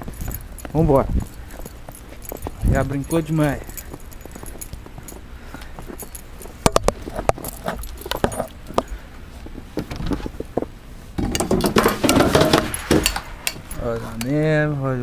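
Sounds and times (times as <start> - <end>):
keys jangling: 0.0 - 6.6, 7.3 - 9.0.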